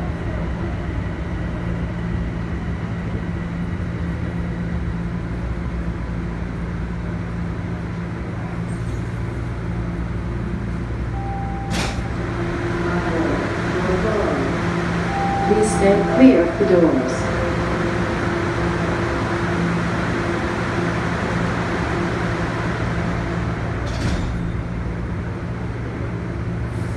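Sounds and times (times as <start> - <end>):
subway car low hum: 0.0 - 26.9
brief beep: 11.2 - 12.1, 15.1 - 18.1.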